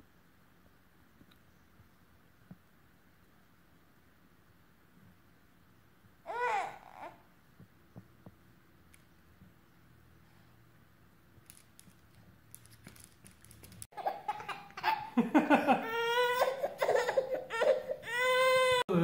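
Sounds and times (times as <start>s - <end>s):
baby laughing and squealing: 6.3s - 7.2s, 13.9s - 18.8s.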